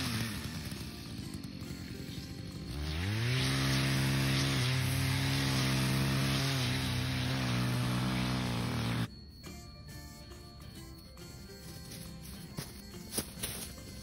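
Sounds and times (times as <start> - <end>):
brush cutter engine revving: 0.0 - 9.1.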